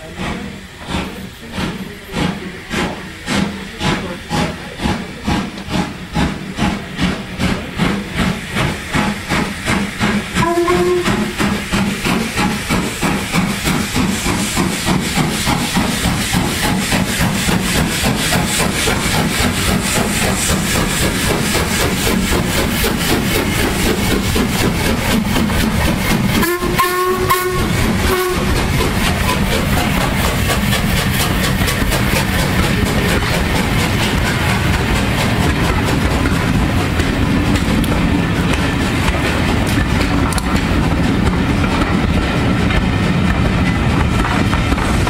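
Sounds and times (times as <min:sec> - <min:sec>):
steady hiss of steam: 0:00.0 - 0:45.0
steam locomotive exhaust beats: 0:00.0 - 0:45.0
steam whistle: 0:10.4 - 0:11.4, 0:26.4 - 0:28.5.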